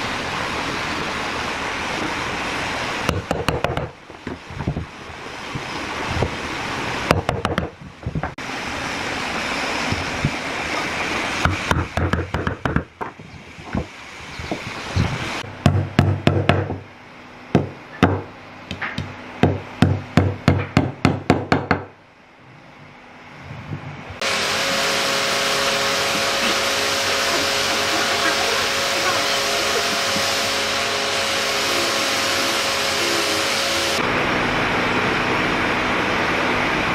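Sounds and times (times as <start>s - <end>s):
steady machine noise: 0.0s - 36.9s
hammer knocking wood: 3.1s - 4.4s, 7.1s - 8.4s, 15.6s - 16.8s, 17.6s - 21.9s.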